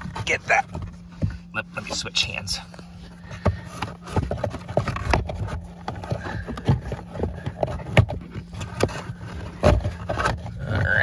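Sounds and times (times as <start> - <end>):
filter frame knocking on plastic: 3.2 - 10.6.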